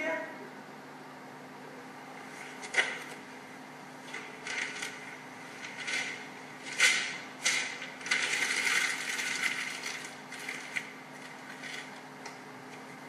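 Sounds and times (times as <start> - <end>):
paper rustling and crinkling: 2.2 - 3.2, 4.0 - 12.0.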